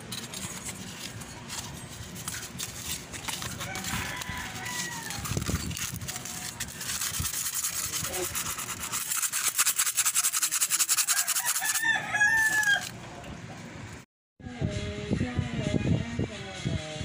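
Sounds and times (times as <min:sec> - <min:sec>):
sandpaper scrubbing metal: 0:00.0 - 0:12.9
rooster crowing: 0:03.4 - 0:05.5, 0:11.0 - 0:13.0.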